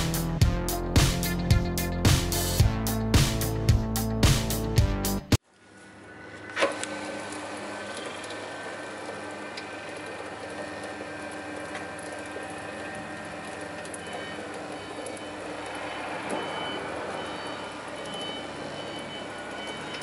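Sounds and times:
glue spreader humming: 0:06.4 - 0:16.5.

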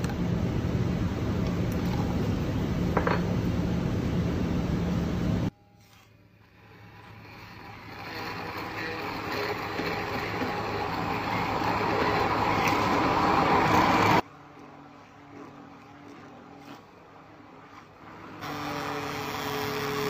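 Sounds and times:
immersion blender running: 0:06.7 - 0:16.8, 0:17.6 - 0:20.0.

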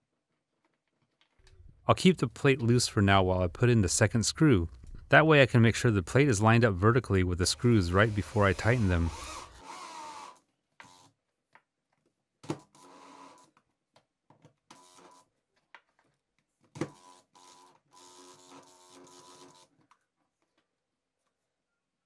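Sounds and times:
drill motor whine: 0:08.0 - 0:10.4.

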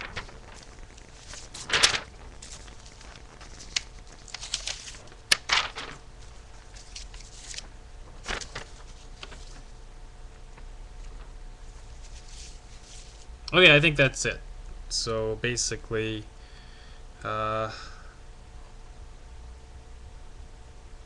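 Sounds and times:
rustling handling noise: 0:00.0 - 0:09.8, 0:10.4 - 0:13.5.

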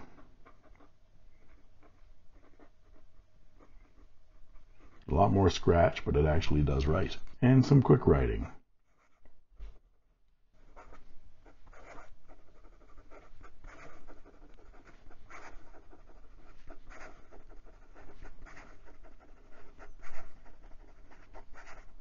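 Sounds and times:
pen nib scratching on paper: 0:00.0 - 0:05.6, 0:08.8 - 0:09.4, 0:10.6 - 0:22.0.

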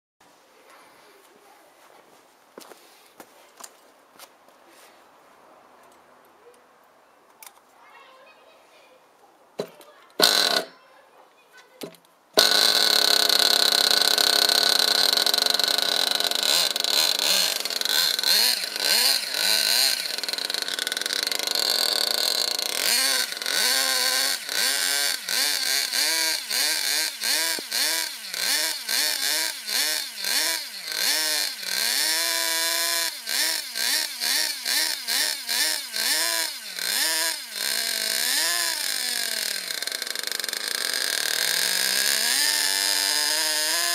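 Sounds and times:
small engine buzzing and revving: 0:09.6 - 0:10.7, 0:12.4 - 0:43.9.

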